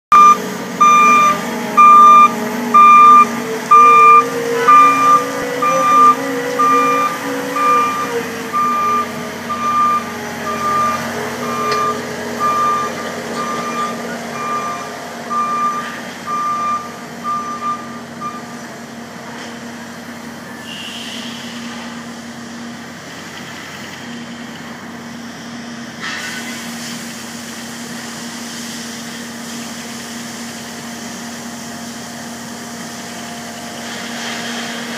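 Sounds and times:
diesel engine running: 0:00.0 - 0:34.9
reversing alarm beeping: 0:00.1 - 0:18.6.

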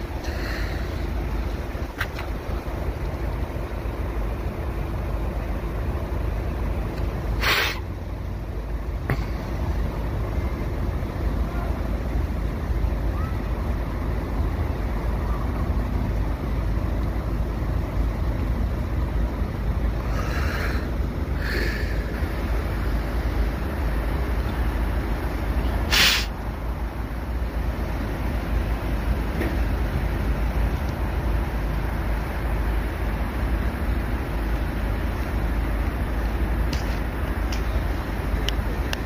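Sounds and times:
road traffic rumble: 0:00.0 - 0:39.0
short sharp hiss: 0:07.4 - 0:07.9, 0:25.9 - 0:26.4.

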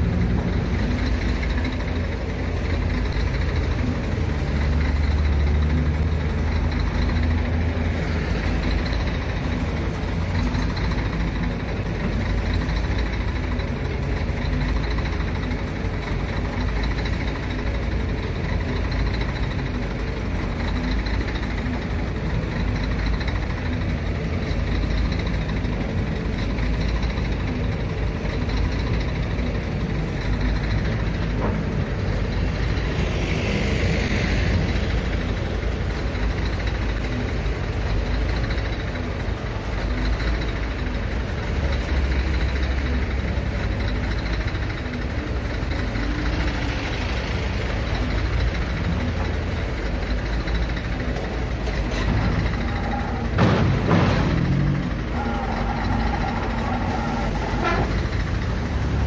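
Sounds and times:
diesel engines rumbling: 0:00.0 - 0:59.0.

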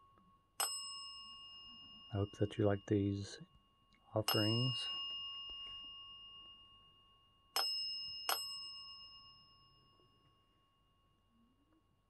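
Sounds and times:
desk bell ding: 0:00.6 - 0:02.9, 0:03.5 - 0:10.4.

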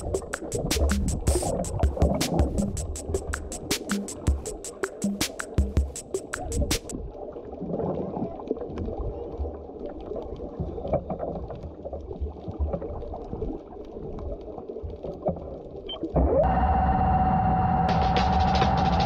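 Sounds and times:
muffled water sloshing underwater: 0:00.0 - 0:17.9
small clicks and crackles: 0:06.4 - 0:16.2.

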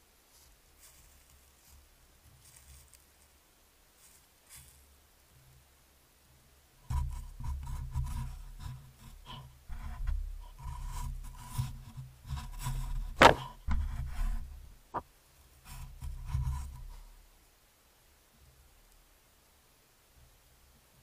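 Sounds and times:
fur rubbing against microphone: 0:07.0 - 0:14.6
knock against camera housing: 0:13.2 - 0:13.8.

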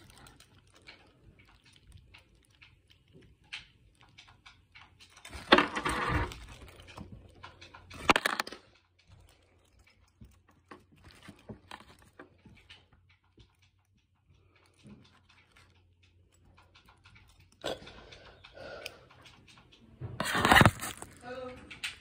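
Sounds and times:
packaging rustling: 0:20.2 - 0:21.2.

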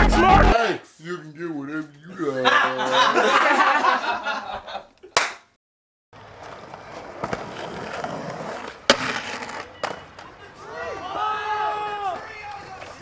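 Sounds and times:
skateboard landing and grinding: 0:06.2 - 0:10.4
skateboard wheels rolling on concrete: 0:06.2 - 0:13.0.

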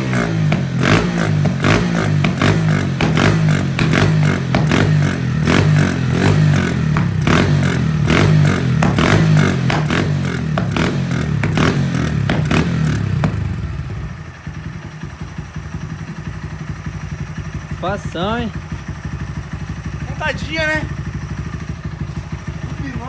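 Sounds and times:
exhaust cracks: 0:00.0 - 0:13.8
motorcycle engine revving: 0:00.0 - 0:23.0.

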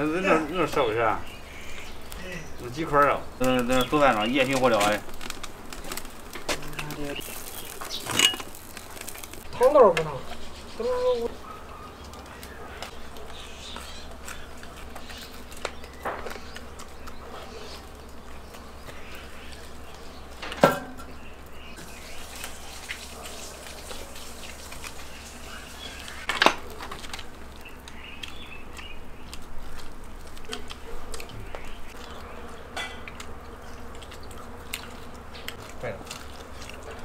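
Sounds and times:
chewing and gnawing bones: 0:03.0 - 0:09.6, 0:11.4 - 0:20.5, 0:26.3 - 0:37.0.

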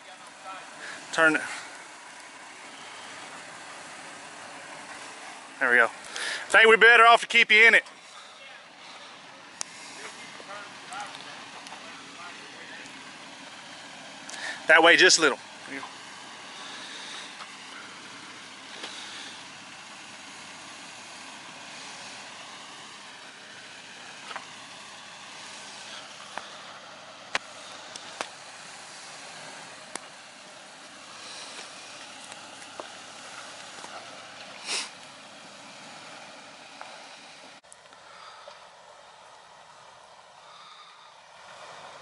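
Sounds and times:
pickup engine running low: 0:00.0 - 0:42.0.

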